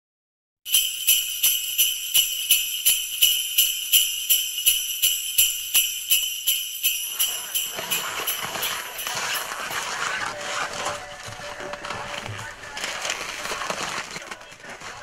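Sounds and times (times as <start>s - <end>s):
jingle bells shaken: 0.7s - 10.3s.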